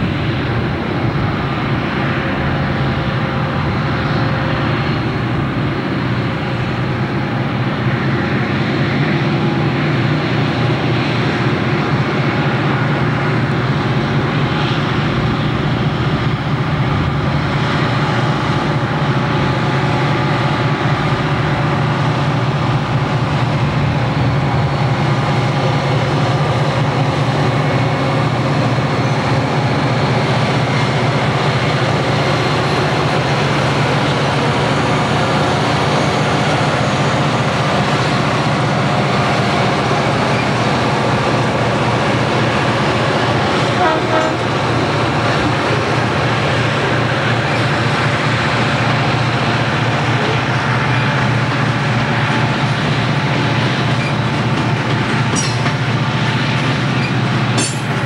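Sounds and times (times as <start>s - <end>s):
diesel locomotive engines droning: 0.0s - 58.0s.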